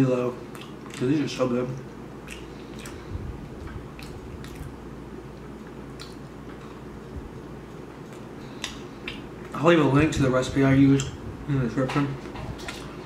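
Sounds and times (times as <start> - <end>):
steady low hum: 0.0 - 13.0
wet mouth chewing clicks: 0.5 - 1.1, 2.2 - 6.8, 7.7 - 9.6.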